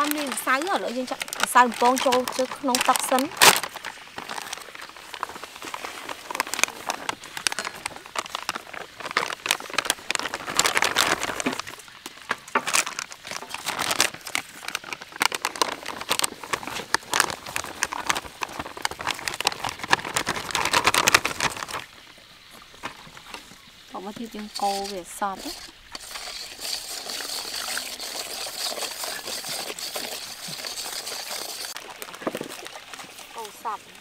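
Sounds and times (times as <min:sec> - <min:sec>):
plastic packets crinkling: 0:00.0 - 0:22.6.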